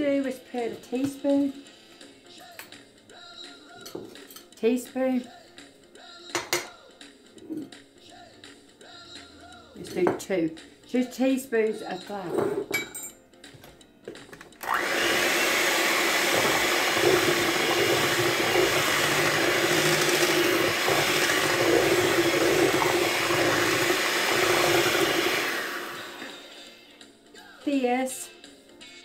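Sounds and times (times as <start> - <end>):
beaters churning liquid: 14.6 - 26.4
electric hand mixer running: 14.6 - 26.6.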